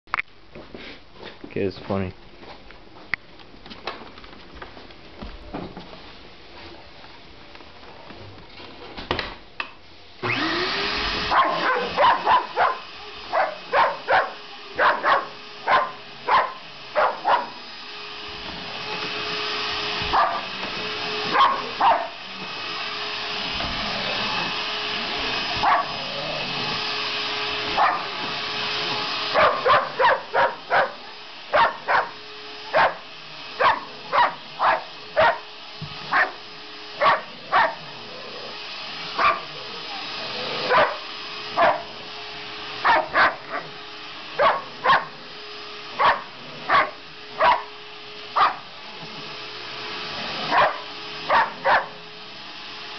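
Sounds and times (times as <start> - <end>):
stick vacuum cleaner whining: 9.1 - 52.9
dog barking: 11.3 - 17.6, 20.1 - 20.5, 21.3 - 22.2, 25.6 - 26.0, 27.8 - 28.1, 29.4 - 33.0, 33.6 - 35.4, 36.1 - 36.4, 37.0 - 37.8, 39.2 - 39.5, 40.7 - 41.0, 41.6 - 41.9, 42.8 - 43.7, 44.4 - 45.1, 46.0 - 47.7, 48.4 - 48.6, 50.5 - 52.0.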